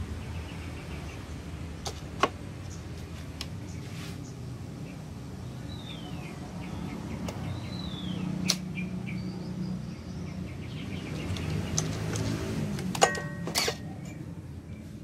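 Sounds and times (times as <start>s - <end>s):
bird chirping: 0.0s - 1.9s, 2.6s - 12.3s.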